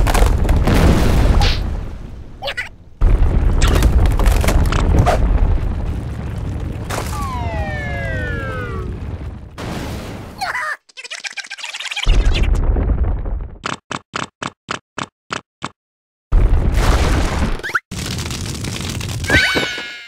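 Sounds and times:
deep earthquake rumbling: 0.0 - 10.4, 12.1 - 13.6, 16.3 - 17.6
ground cracking: 0.0 - 14.0, 16.4 - 19.8.

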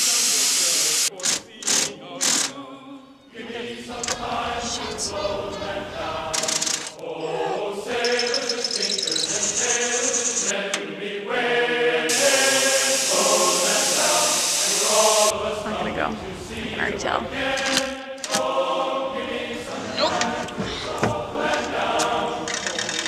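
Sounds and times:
high hiss: 0.0 - 1.1, 8.0 - 10.5, 12.0 - 15.6.

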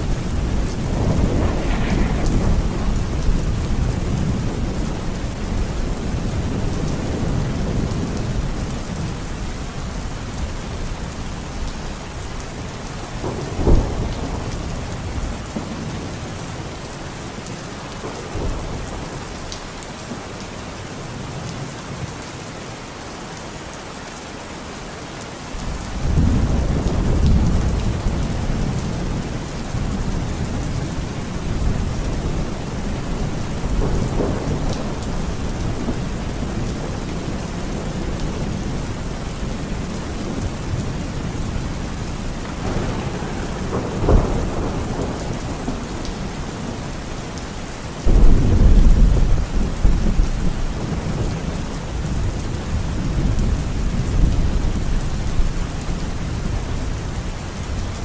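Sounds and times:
thunderclap: 0.0 - 5.4, 48.0 - 51.3
deep roll of thunder: 0.0 - 8.6, 13.2 - 16.4, 42.4 - 46.8, 48.0 - 55.5
heavy rain pouring: 0.0 - 58.0.

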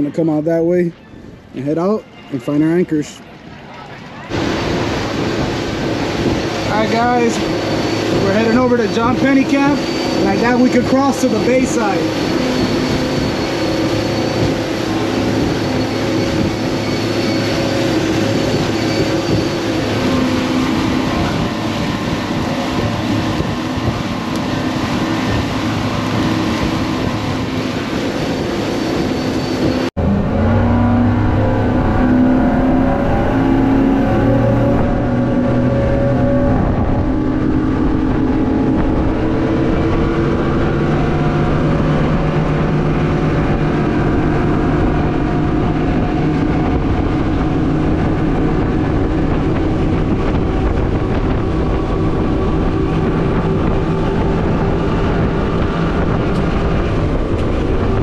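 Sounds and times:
boat engine drone: 0.0 - 58.0
water and wind rushing: 0.0 - 58.0.

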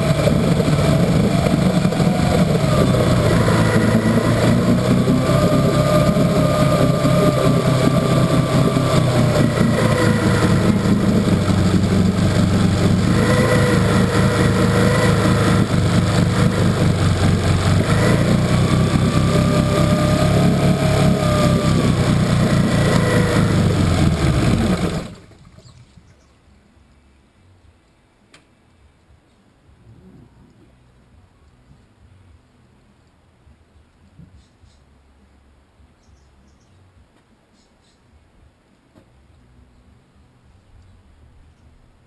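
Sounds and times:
outboard motor running: 0.0 - 26.3.

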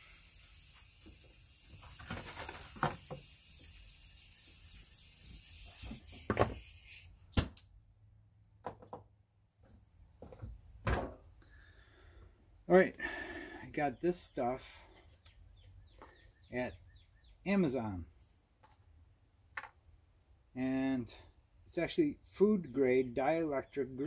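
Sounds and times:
steady hiss: 0.0 - 7.2.

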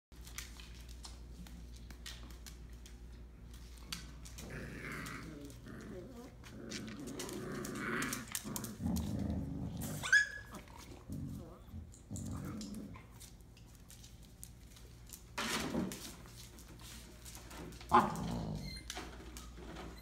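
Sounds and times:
puppies play-growling: 0.3 - 19.9
puppies whimpering: 10.0 - 10.6.

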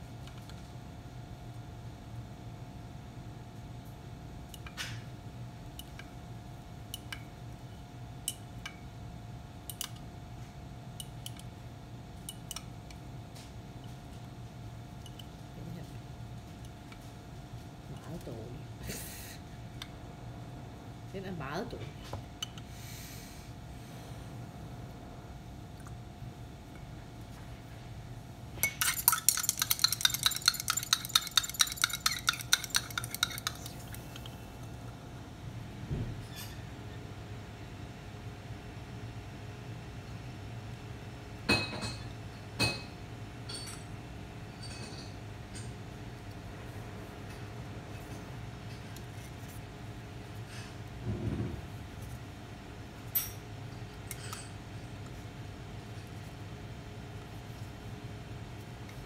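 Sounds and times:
electrical hum with faint whine: 0.0 - 59.0
glass jar clicks and taps: 28.6 - 34.0
glass rod clinking in beaker: 28.6 - 34.3, 54.1 - 54.6.

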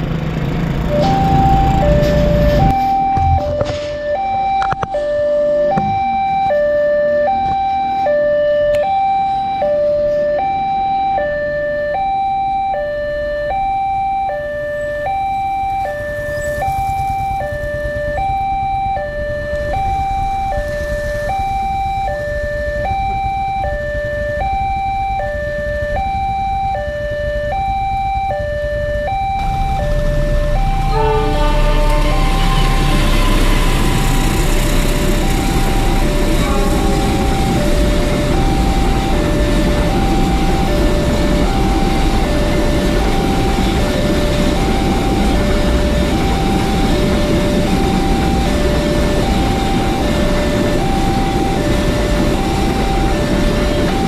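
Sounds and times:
freight train rumble: 0.0 - 8.5, 14.8 - 22.8, 28.7 - 54.0
two-tone crossing alarm: 0.4 - 54.0.

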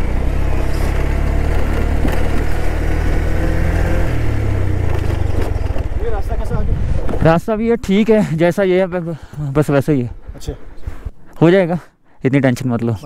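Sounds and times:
motorcycle engine running: 0.0 - 7.0.

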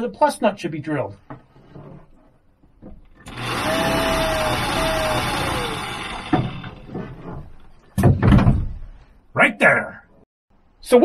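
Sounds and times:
electric drill whine: 3.3 - 6.8.

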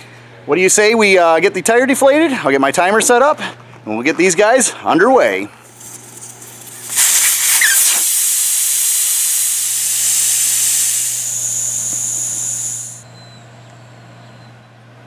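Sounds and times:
air hissing from tire valve: 5.6 - 13.1.

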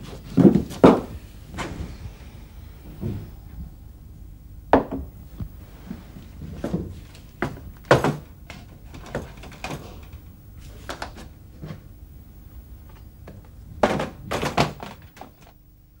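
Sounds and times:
loud thunks: 2.8 - 3.7.

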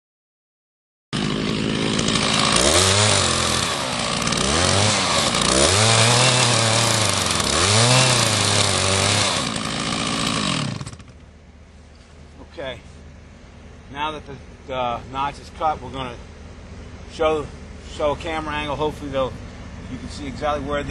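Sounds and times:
chainsaw cutting wood: 1.2 - 11.3.

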